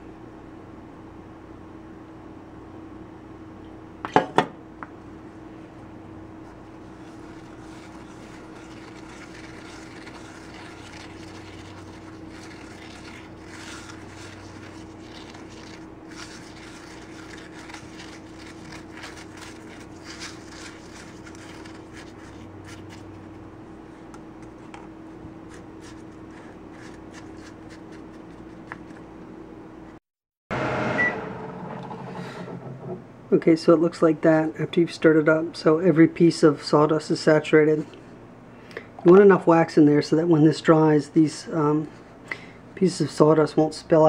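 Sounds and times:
skewer scraping in wax: 6.8s - 23.3s
low hum: 30.5s - 34.2s.

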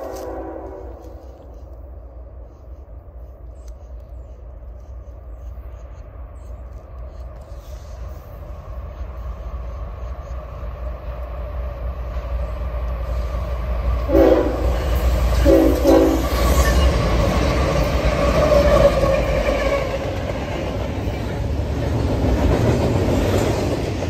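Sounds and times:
train air horn blasts: 0.0s - 1.6s, 14.0s - 16.8s
clatter of passing locomotives: 0.0s - 24.0s
diesel locomotive engine rumble: 0.0s - 24.0s.

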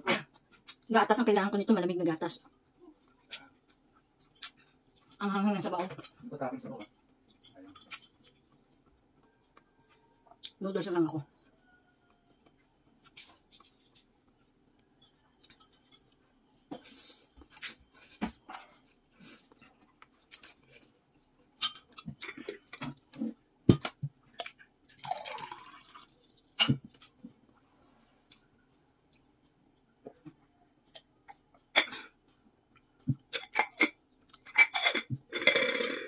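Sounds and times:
chewing: 2.5s - 5.2s, 6.9s - 10.6s, 11.3s - 23.4s.

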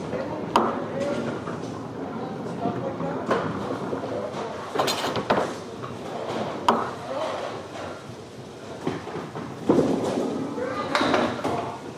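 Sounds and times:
background chatter: 0.0s - 9.4s, 10.0s - 11.9s
bowling balls and pins clattering: 8.8s - 11.9s.

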